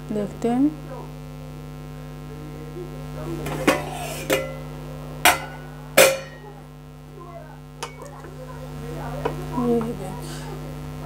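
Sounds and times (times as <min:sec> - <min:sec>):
electrical hum: 0:00.0 - 0:11.0
metal lid clanking on pot: 0:03.5 - 0:04.7, 0:05.3 - 0:06.5, 0:07.8 - 0:08.1.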